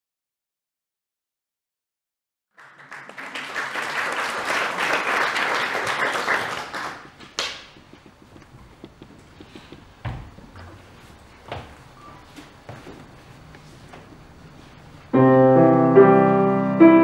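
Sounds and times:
audience applauding: 2.6s - 8.0s.

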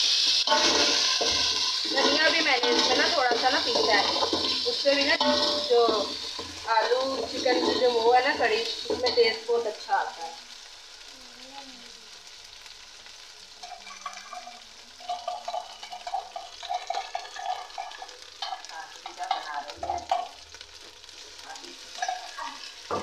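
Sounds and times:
onion frying in oil: 0.0s - 23.0s
metal ladle scraping pot: 0.2s - 9.2s.

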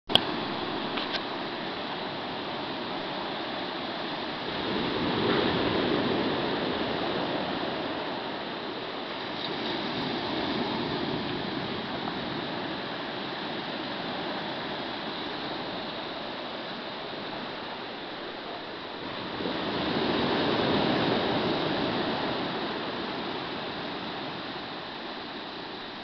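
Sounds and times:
sea waves washing onto beach: 0.1s - 26.0s.

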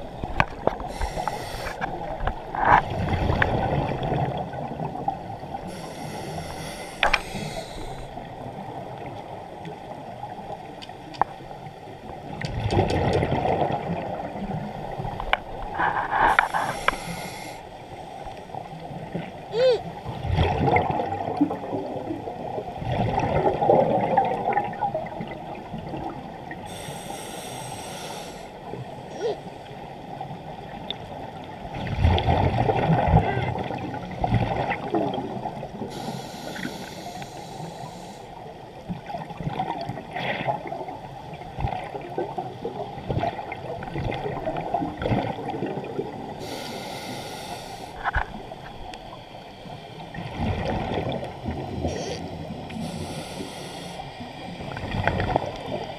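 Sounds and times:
regulator hiss on inhale: 0.8s - 1.9s, 5.6s - 8.4s, 15.8s - 18.8s, 26.6s - 28.8s, 35.8s - 38.4s, 46.4s - 48.2s, 51.9s - 54.5s.

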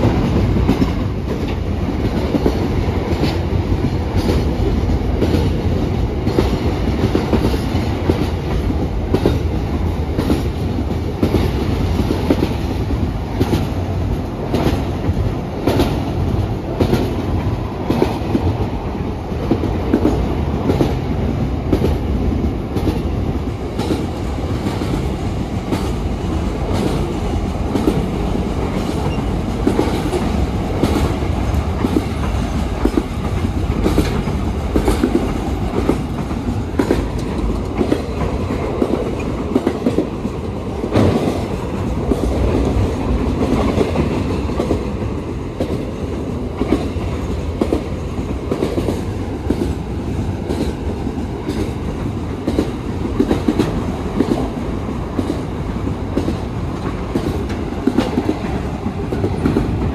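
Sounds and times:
train wheels clattering on rails: 0.0s - 59.9s.

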